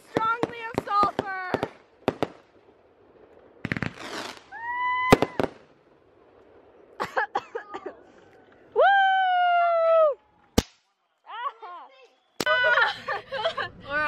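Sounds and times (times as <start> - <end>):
fireworks popping: 0.0 - 7.2, 10.5 - 10.9
fireworks crackling: 0.0 - 8.2, 10.4 - 11.0.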